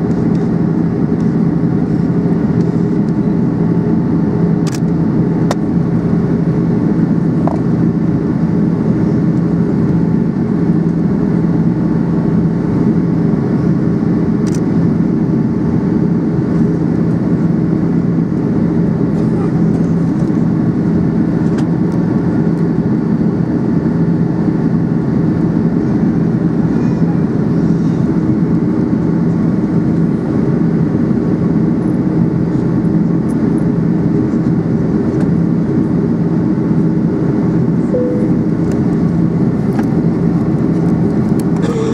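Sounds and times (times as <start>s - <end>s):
jet engine drone: 0.0s - 41.9s
low cabin hum: 37.8s - 41.9s.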